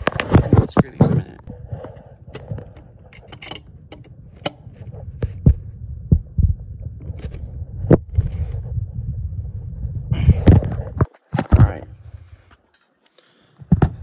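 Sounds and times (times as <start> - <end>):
plastic and metal parts clicking: 2.3 - 4.7.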